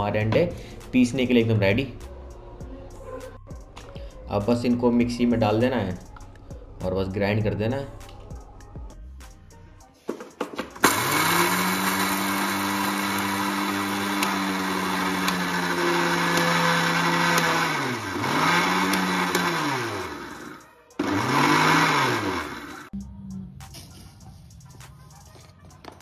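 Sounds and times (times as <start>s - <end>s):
mixer grinder motor: 10.8s - 23.0s.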